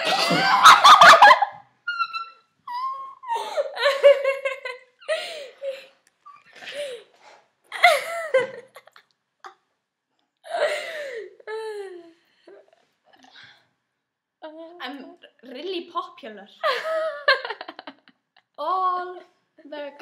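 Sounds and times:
young women laughing: 0.0 - 5.9, 7.7 - 9.1, 16.6 - 18.2.

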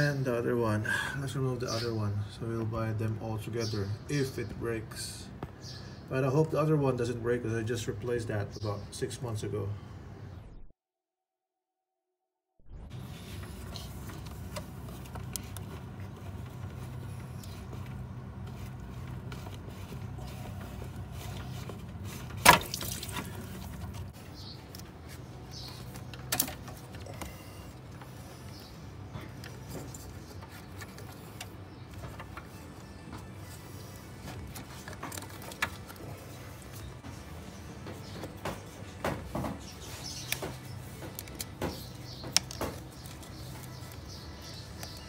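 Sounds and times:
steady low hum: 12.7 - 45.0.

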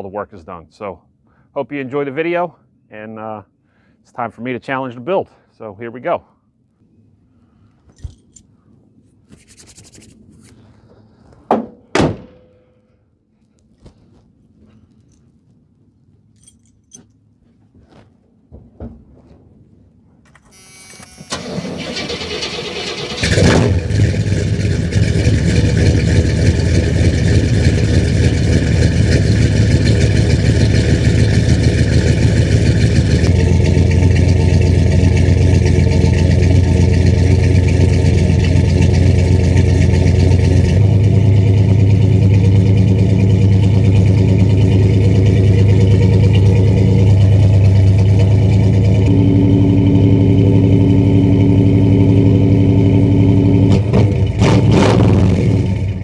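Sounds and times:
car engine starting and idling: 21.0 - 56.0.

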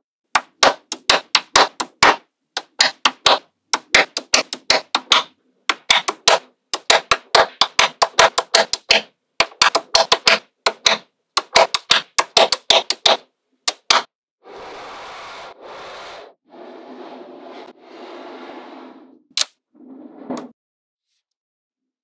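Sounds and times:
magnetic balls clacking together: 0.4 - 14.1.

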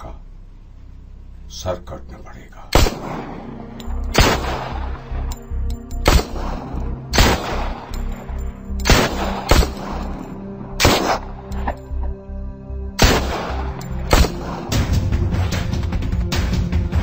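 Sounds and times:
background music with low beat: 0.0 - 17.0
handgun shots with ringing echo: 2.8 - 11.8, 13.0 - 15.0.

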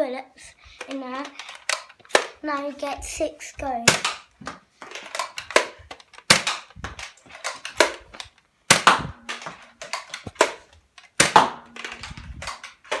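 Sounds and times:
toy dart blaster popping: 5.5 - 8.0, 8.7 - 10.6, 11.2 - 13.0.

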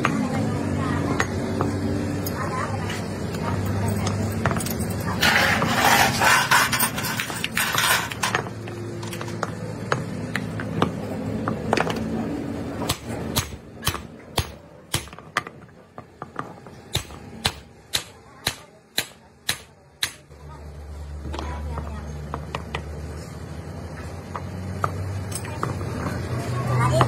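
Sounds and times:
steel parts scraping: 4.0 - 9.3.

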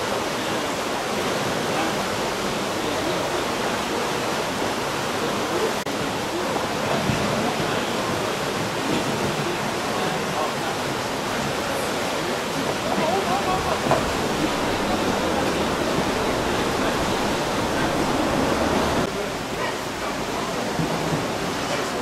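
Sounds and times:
river water rushing: 0.0 - 20.7
wooden oar splashing: 12.2 - 19.1.

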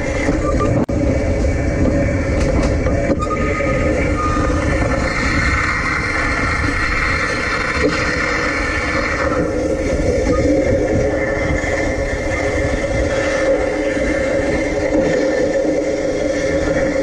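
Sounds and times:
trolley collector humming on wire: 0.0 - 17.0
wind rumble on microphone: 0.0 - 17.0.

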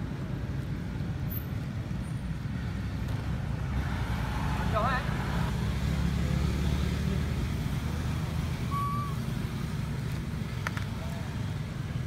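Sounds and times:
engine rumbling: 0.0 - 12.0
short high chirp: 8.7 - 9.2.

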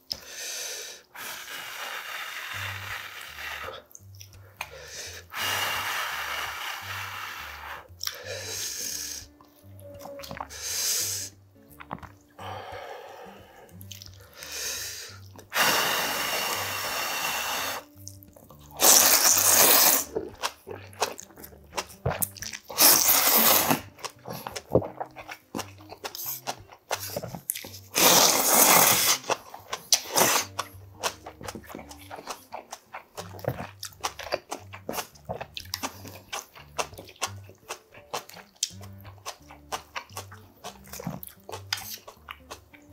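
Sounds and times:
wet chewing: 2.6 - 5.6, 7.0 - 15.6, 17.7 - 42.9
lip smacks: 3.8 - 5.3, 7.9 - 8.3, 17.8 - 42.9
noodles slurped loudly: 18.7 - 21.2, 21.8 - 37.4.

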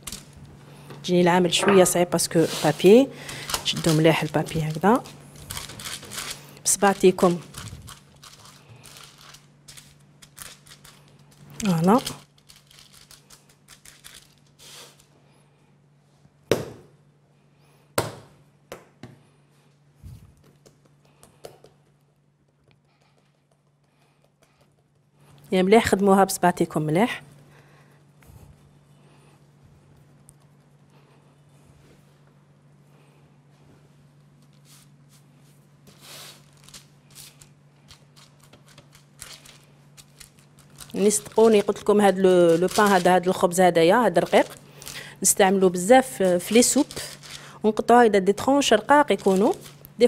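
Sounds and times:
steady low hum: 0.0 - 50.0
baking paper crinkling: 2.2 - 15.1, 34.2 - 50.0
hands pressing bread dough: 20.4 - 25.2.

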